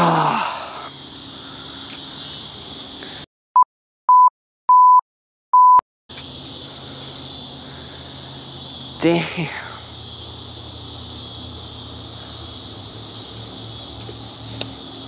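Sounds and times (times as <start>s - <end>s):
insects chirping: 0.0s - 3.3s, 6.1s - 15.0s
censor bleeps: 3.6s - 5.0s, 5.6s - 5.8s.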